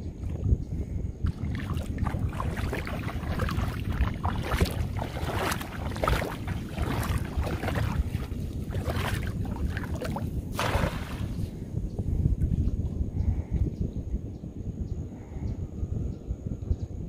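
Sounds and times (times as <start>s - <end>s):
wind rumble on microphone: 0.0s - 17.0s
footsteps splashing in water: 1.2s - 11.5s.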